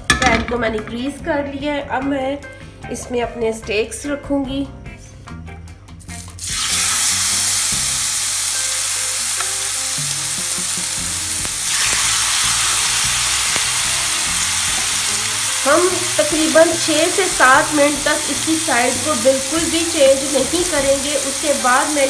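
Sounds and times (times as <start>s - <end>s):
chicken sizzling on a grill pan: 6.4s - 22.0s.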